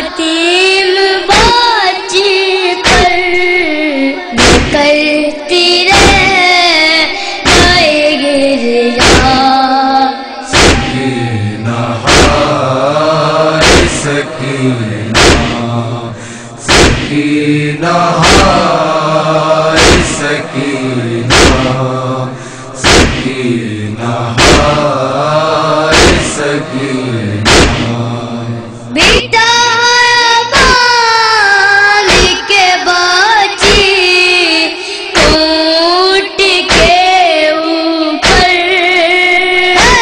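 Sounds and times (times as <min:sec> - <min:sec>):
high young voice chanting: 0:00.0 - 0:13.9, 0:28.9 - 0:40.0
chest-beating thuds: 0:04.4 - 0:04.8, 0:06.0 - 0:06.4, 0:07.4 - 0:07.9, 0:09.0 - 0:09.4, 0:10.5 - 0:29.3, 0:32.1 - 0:32.4, 0:35.2 - 0:35.5, 0:36.7 - 0:37.0
voices chanting in unison: 0:07.0 - 0:09.5, 0:10.4 - 0:29.4.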